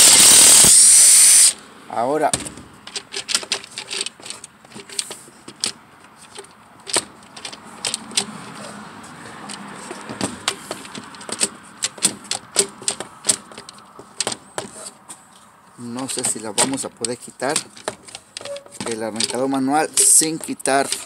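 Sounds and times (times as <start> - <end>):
plastic housing clicking and knocking: 2.3 - 8.6, 9.4 - 14.8, 16.1 - 21.0.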